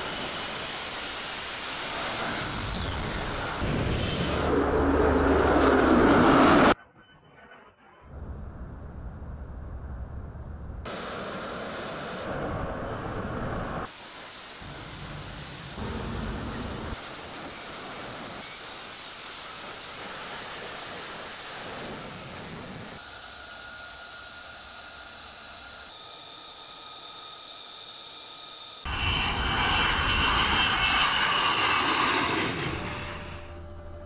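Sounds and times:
jet engine roar: 0:00.0 - 0:06.8, 0:08.2 - 0:34.0
high whine: 0:28.9 - 0:34.0.

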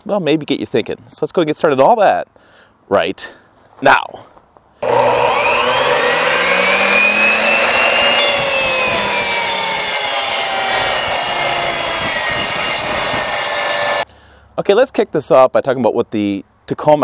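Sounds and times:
miter saw motor whining: 0:04.8 - 0:14.0
saw blade cutting wood: 0:04.8 - 0:14.0.

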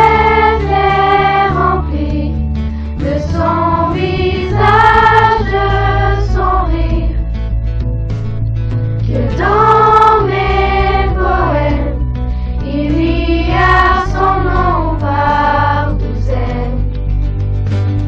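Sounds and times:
choir singing long notes: 0:00.0 - 0:02.4, 0:03.0 - 0:07.2, 0:09.1 - 0:12.0, 0:12.6 - 0:16.8
steady bass accompaniment: 0:00.0 - 0:18.0.

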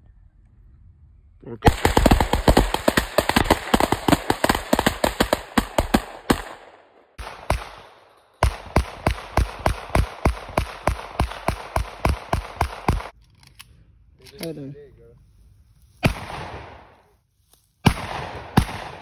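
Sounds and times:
rapid gunfire: 0:01.6 - 0:07.8, 0:08.4 - 0:13.1.

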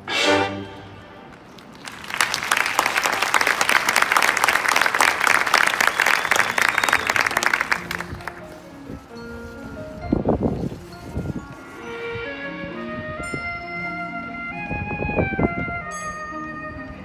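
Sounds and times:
audience applauding and cheering: 0:01.3 - 0:08.4.

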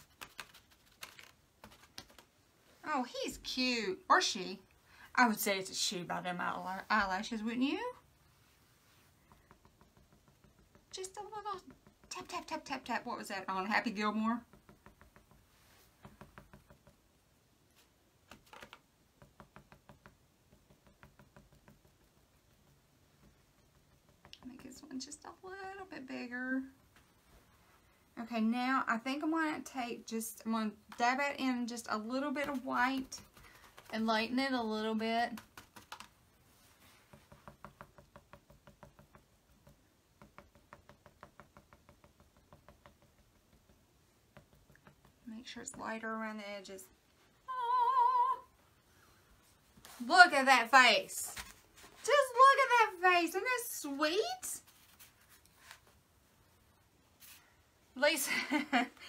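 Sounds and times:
sponge tapping paint on wood: 0:09.2 - 0:17.2, 0:18.3 - 0:24.6, 0:37.0 - 0:45.9.

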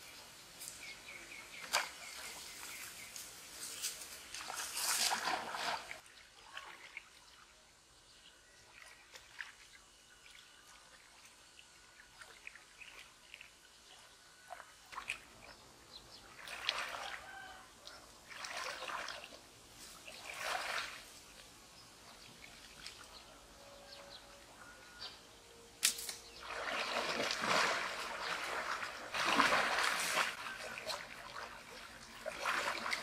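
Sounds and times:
water splashing and sloshing: 0:04.2 - 0:07.5, 0:08.6 - 0:15.6, 0:16.2 - 0:24.4, 0:26.3 - 0:33.0.

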